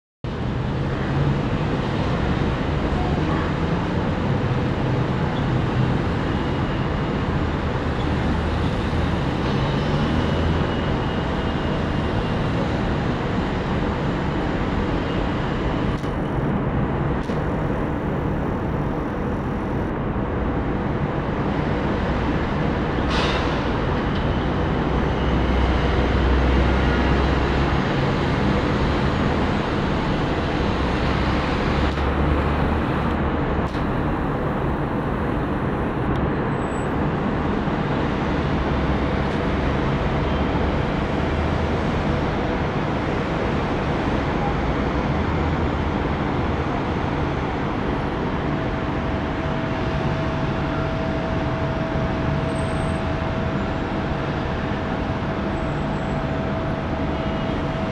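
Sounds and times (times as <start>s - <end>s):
distant road traffic hum: 0.3s - 57.9s
faint steady whine: 14.9s - 21.4s, 29.4s - 37.4s.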